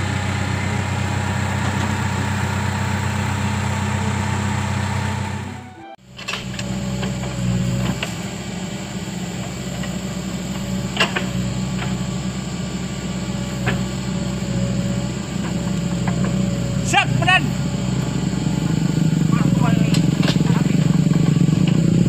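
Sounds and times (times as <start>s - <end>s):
diesel engine running under load: 0.0s - 22.0s
bucket and arm clanking: 15.3s - 17.4s, 19.4s - 22.0s.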